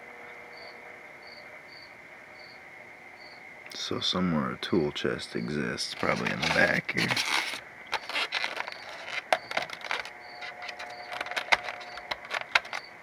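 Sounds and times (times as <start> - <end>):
styrofoam and cardboard handled: 5.8 - 13.0.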